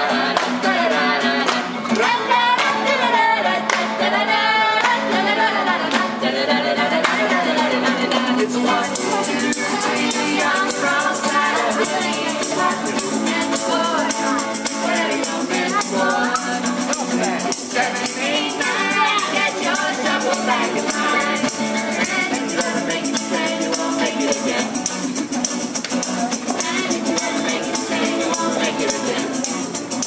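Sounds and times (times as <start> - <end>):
strummed guitar and ukuleles: 0.0 - 30.0
women singing together: 0.0 - 30.0
tambourines jingling: 8.6 - 30.0.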